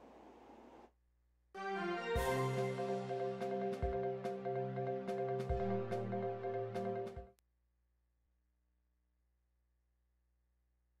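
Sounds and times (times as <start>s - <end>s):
theme music with keyboard chords: 1.6s - 7.4s.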